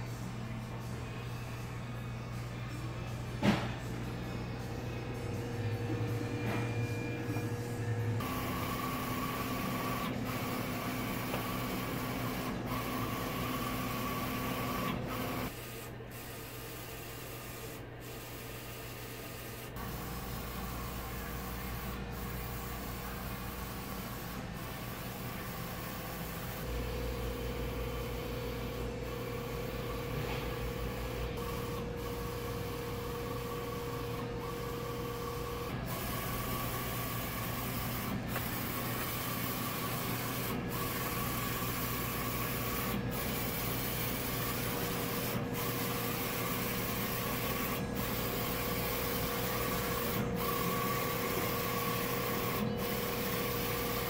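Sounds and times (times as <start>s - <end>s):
printer carriage whirring: 0.0s - 54.0s.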